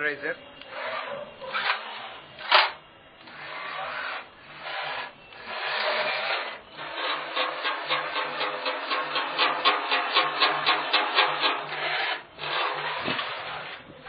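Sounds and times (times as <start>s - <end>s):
robot motors whirring: 0.6s - 8.4s, 11.1s - 14.0s.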